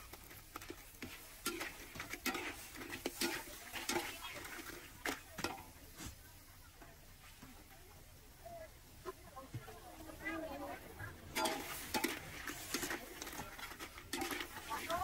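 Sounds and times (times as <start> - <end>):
hard objects clattering: 0.0 - 5.7, 11.2 - 15.0.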